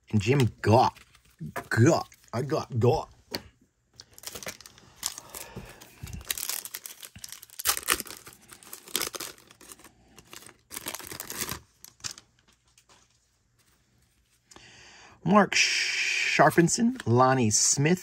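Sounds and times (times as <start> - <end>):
wrapper tearing and crinkling: 4.1 - 12.8.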